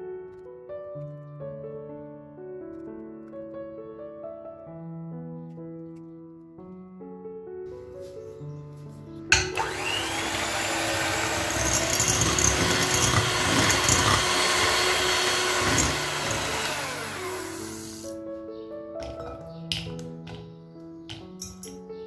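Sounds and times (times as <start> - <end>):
soft piano music: 0.0 - 14.2, 14.8 - 22.0
electric hand mixer whirring: 9.4 - 18.2.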